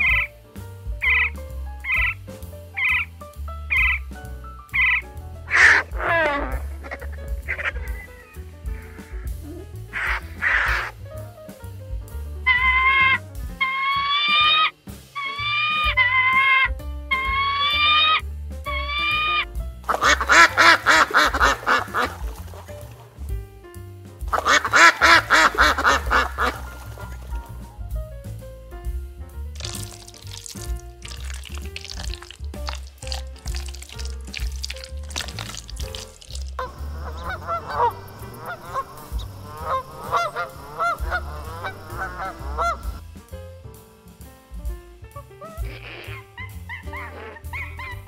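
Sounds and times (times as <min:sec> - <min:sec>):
soft background music: 0:00.0 - 0:48.0
duck quacking: 0:04.8 - 0:10.9, 0:12.5 - 0:23.0, 0:24.3 - 0:27.3, 0:33.6 - 0:43.0, 0:45.4 - 0:48.0.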